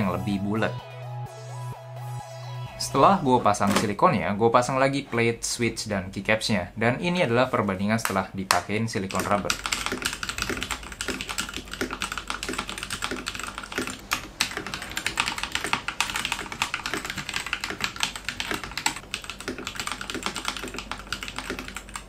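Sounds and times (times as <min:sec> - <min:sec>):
mechanical keyboard typing: 0:09.0 - 0:22.0.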